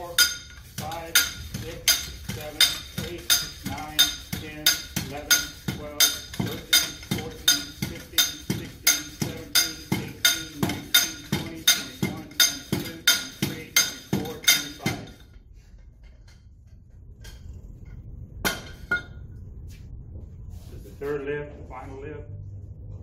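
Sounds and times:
hammer striking metal mold: 0.0 - 15.2, 18.4 - 19.2.

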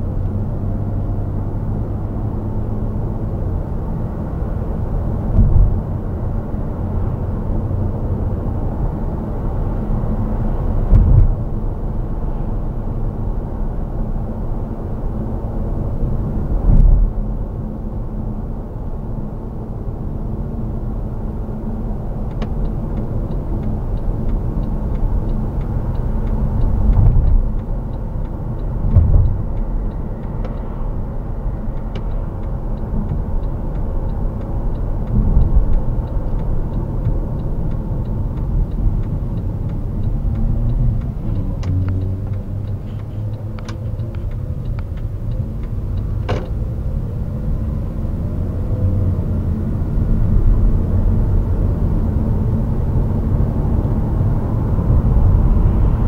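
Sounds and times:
road and engine rumble: 0.0 - 56.0
faint light ticks: 21.9 - 54.0.

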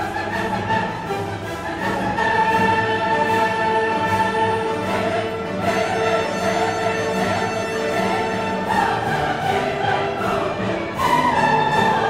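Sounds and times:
orchestral music with held notes: 0.0 - 12.0.

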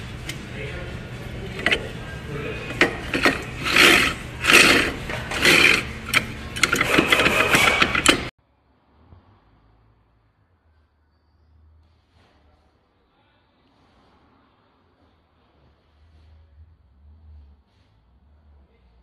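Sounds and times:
steady low hum: 0.0 - 8.3
brake disc scraping: 1.2 - 8.3.

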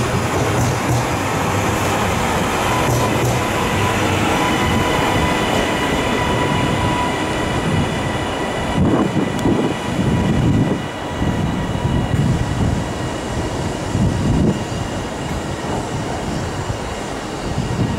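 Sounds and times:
train high whine: 0.0 - 17.9
train wheels rumbling on rails: 0.0 - 17.9.

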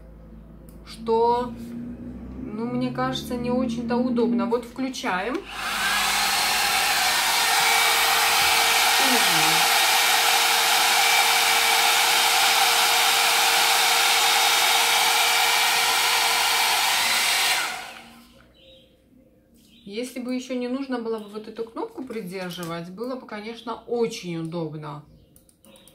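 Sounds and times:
hot air brush fan blowing: 5.3 - 18.3.

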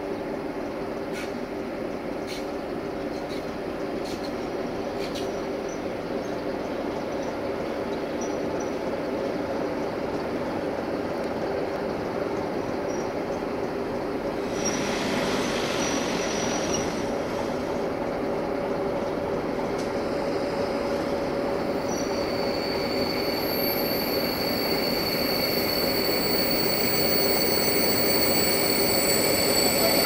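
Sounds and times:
freight train rumble and hum: 0.0 - 30.0
high steady squeal: 20.1 - 30.0.

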